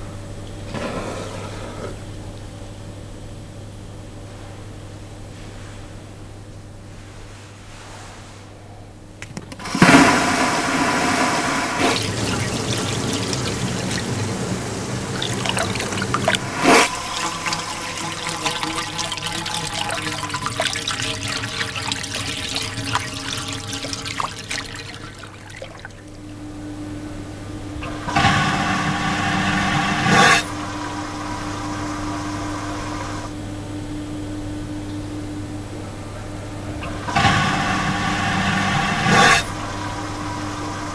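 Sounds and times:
steady hum: 9.1 - 40.9
vacuum toilet suction rush: 9.5 - 33.3, 36.8 - 40.9
rush of air and water: 9.6 - 26.2.

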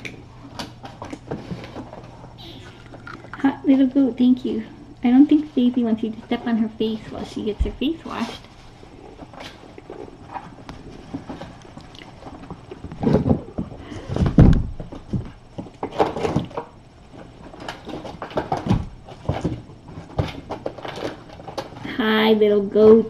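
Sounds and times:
knocks and thumps: 12.2 - 16.7, 17.5 - 21.0.

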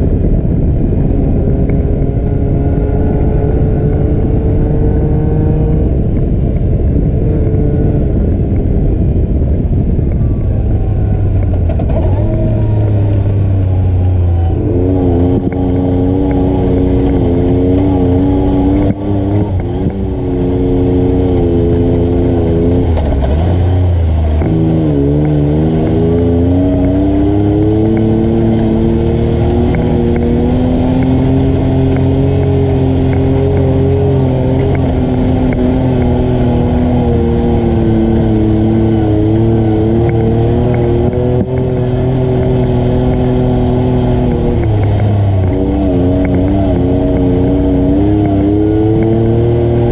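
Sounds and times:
atv engine revving: 0.0 - 9.1, 9.8 - 49.9.

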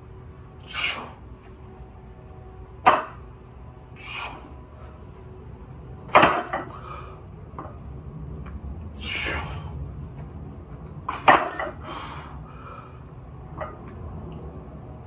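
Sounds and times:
sharp forceful exhale: 0.6 - 1.2, 4.0 - 5.0, 9.0 - 9.7.

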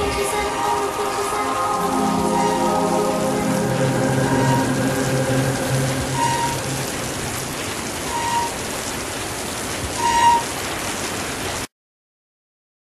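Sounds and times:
low musical notes: 0.0 - 8.8
steady rain: 0.0 - 11.7
short high tones: 1.1 - 8.6.

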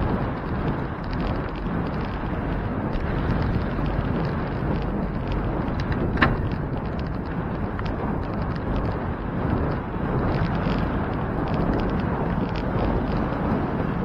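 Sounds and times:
low road rumble: 0.0 - 14.0
wind buffeting microphone: 0.0 - 14.0.

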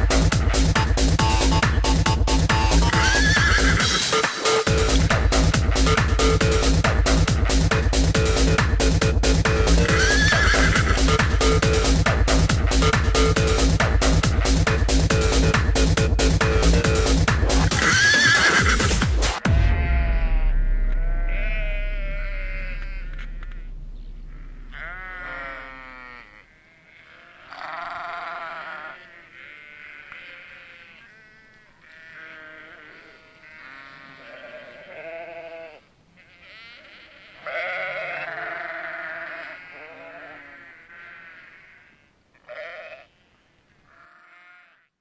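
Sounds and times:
song with low bass note: 0.0 - 17.9, 18.6 - 26.0
wavering bleating calls: 2.6 - 8.6, 9.4 - 15.5, 17.0 - 45.0.

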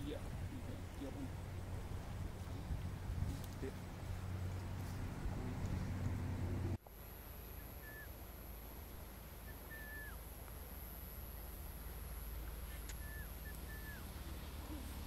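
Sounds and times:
bird whistling calls: 7.6 - 8.1, 9.4 - 10.2, 12.8 - 14.1.

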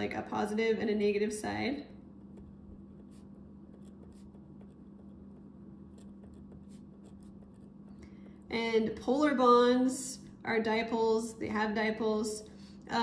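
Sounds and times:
low hum: 0.0 - 13.0
pen scratching on paper: 2.1 - 8.5.

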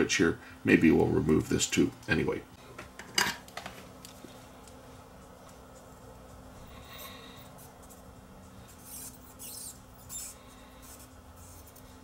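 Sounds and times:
low steady hum: 0.0 - 12.0
soldering iron scratching: 7.5 - 12.0.

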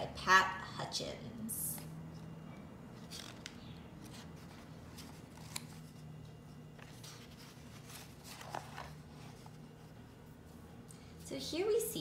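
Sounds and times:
book pages rustling: 1.8 - 10.7.

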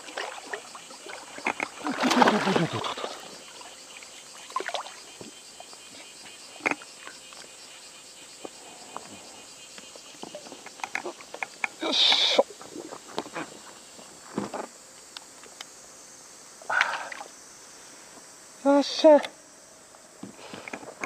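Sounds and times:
water splashing: 0.0 - 3.6, 4.5 - 5.0.

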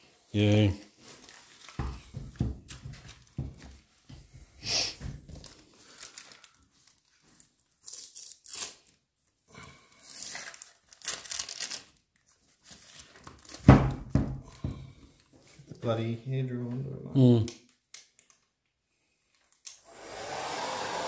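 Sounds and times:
wrapping crinkling and tearing: 0.4 - 1.9, 5.3 - 9.1, 9.8 - 13.7, 17.6 - 18.5.

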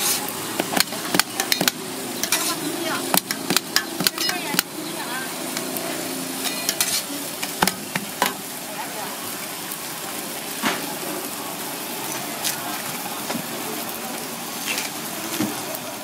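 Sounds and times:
spatula clicking on griddle: 0.0 - 4.7, 6.4 - 8.4
flatbread sizzling on griddle: 0.0 - 16.0.

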